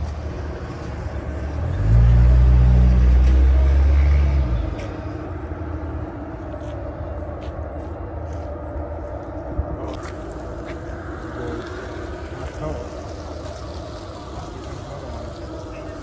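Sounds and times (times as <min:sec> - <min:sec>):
motor vehicle rumble: 0:00.0 - 0:16.0
steady background hum: 0:04.6 - 0:16.0.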